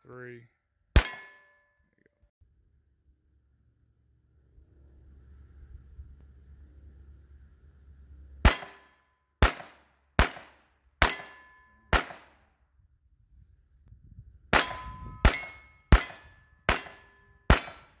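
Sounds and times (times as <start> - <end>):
metallic ring of steel targets: 1.0 - 1.9, 8.4 - 9.1, 11.0 - 12.4, 14.5 - 18.0
pistol shots: 8.4 - 12.4, 14.5 - 18.0.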